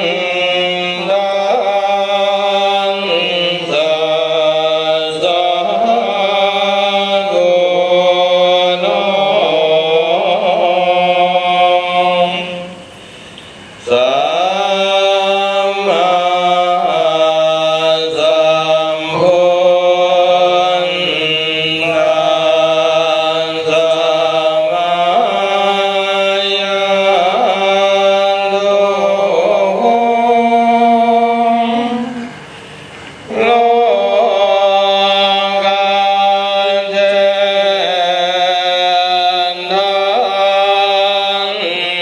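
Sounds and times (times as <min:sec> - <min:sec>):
monk chanting: 0:00.0 - 0:12.9, 0:13.8 - 0:32.7, 0:33.3 - 0:42.0.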